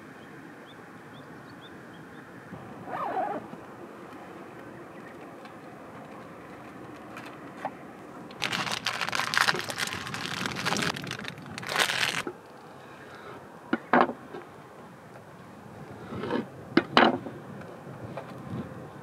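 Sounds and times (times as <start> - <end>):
plastic wrapper crinkling: 8.4 - 12.3.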